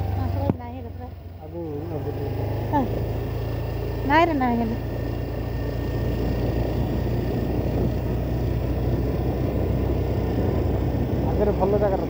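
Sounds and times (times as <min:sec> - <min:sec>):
motorcycle engine rumble: 0:00.0 - 0:12.0
wind noise: 0:06.1 - 0:12.0.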